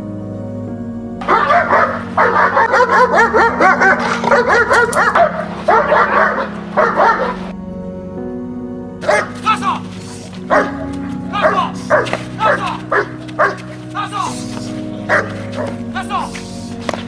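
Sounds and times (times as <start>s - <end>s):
dog barking rapidly: 1.2s - 7.5s, 9.0s - 9.4s, 10.5s - 13.7s, 15.1s - 15.8s.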